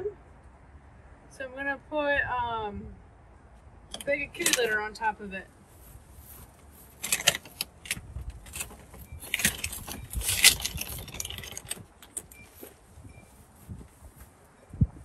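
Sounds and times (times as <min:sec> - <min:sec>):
litter bag crinkling and rustling: 0:08.4 - 0:12.8.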